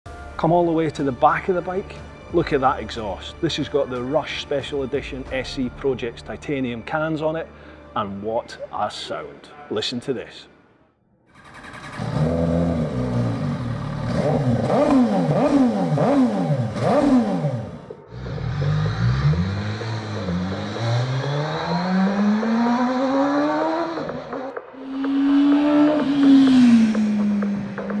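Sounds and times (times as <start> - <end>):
motorcycle accelerating: 11.3 - 28.0
motorcycle engine revving: 11.3 - 28.0.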